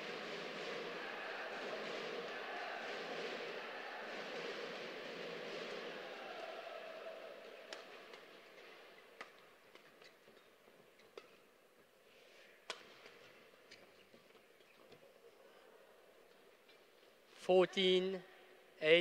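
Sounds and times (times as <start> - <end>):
crowd murmur: 0.0 - 8.6.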